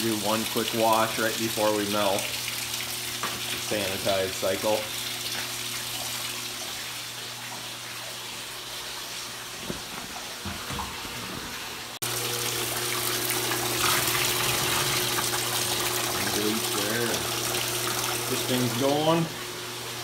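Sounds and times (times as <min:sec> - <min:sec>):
water rushing through hoses: 0:11.6 - 0:20.0.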